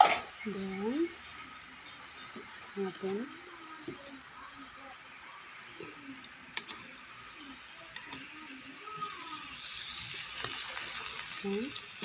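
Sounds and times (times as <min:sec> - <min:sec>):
sauce bubbling and sizzling in pan: 0:00.2 - 0:12.0
metal tongs clicking on pan: 0:09.6 - 0:12.0.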